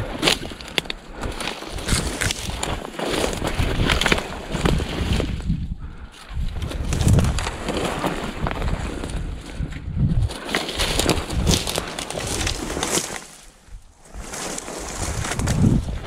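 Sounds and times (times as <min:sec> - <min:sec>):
wind rumbling on microphone: 0:00.0 - 0:16.0
footsteps crunching through grass: 0:10.4 - 0:16.0.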